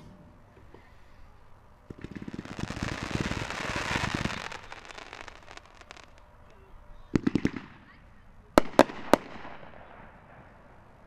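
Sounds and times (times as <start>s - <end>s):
firework crackling over a hiss: 1.9s - 6.6s.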